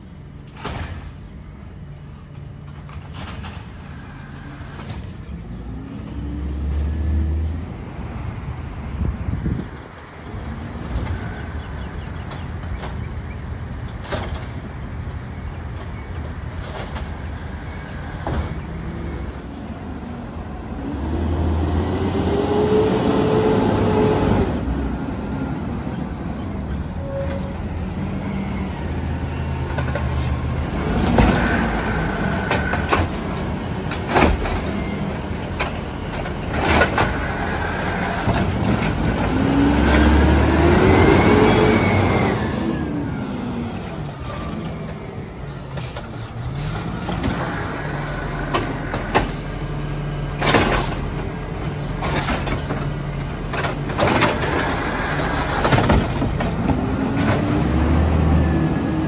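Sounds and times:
clunks: 10.8s - 14.8s, 29.6s - 40.0s, 44.2s - 58.0s.

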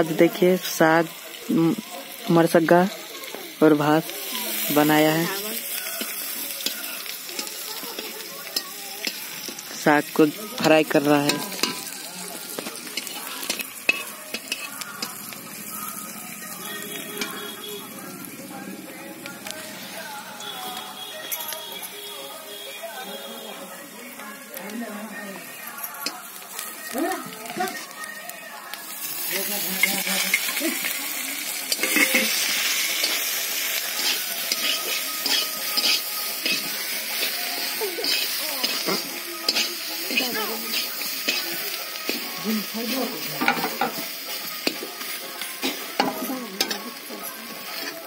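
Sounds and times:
food sizzling: 0.0s - 48.0s
metal spatula scraping a wok: 4.3s - 15.7s, 31.6s - 48.0s.

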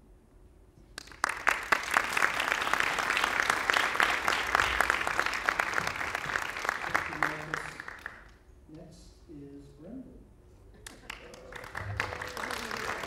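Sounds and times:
audience applauding: 1.0s - 8.3s, 10.8s - 13.0s.

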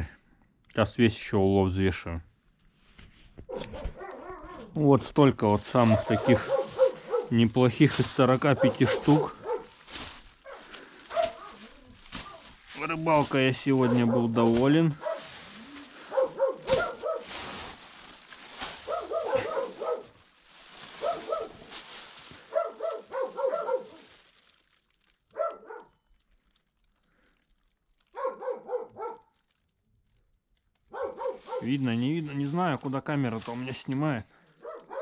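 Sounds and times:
dog yipping and whining: 3.5s - 4.7s
plastic bag rustling: 5.3s - 25.5s, 26.3s - 35.0s.

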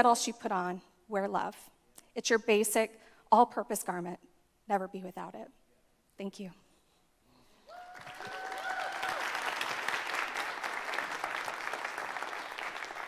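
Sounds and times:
congregation applauding: 7.7s - 13.0s.

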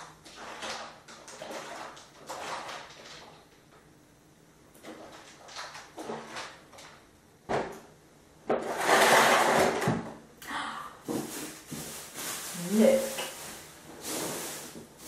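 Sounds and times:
plastic box scraping across floor: 8.5s - 10.0s, 11.1s - 15.0s
plastic items knocking: 8.5s - 10.2s, 11.0s - 15.0s.

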